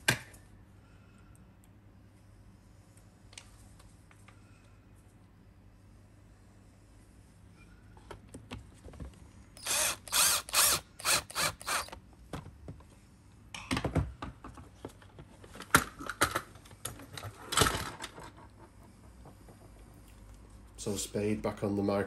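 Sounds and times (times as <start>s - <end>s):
screwdriver bursts: 9.6s - 12.0s.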